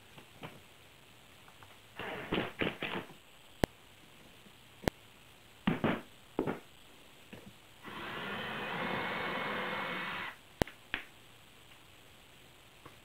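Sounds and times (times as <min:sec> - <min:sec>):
cordless drill boring through metal: 0:07.8 - 0:10.4.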